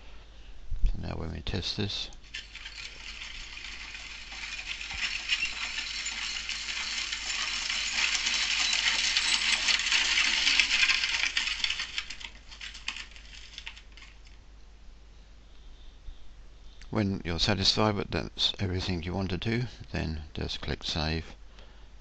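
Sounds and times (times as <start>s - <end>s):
horse hooves and carriage wheels clatter: 2.3s - 14.2s.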